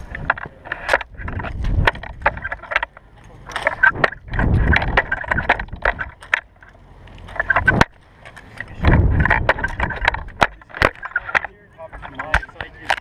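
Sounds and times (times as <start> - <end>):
wind rushing over microphone: 3.8 - 6.2, 8.8 - 10.5.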